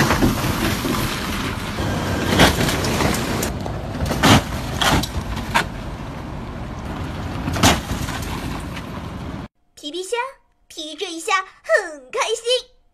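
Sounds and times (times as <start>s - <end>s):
street traffic: 0.0s - 9.5s
wheels banging into pothole: 0.0s - 9.5s.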